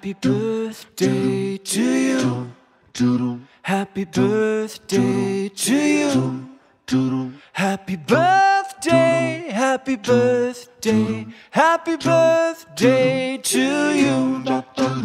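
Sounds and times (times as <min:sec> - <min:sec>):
person singing long bending notes: 0:12.8 - 0:15.0.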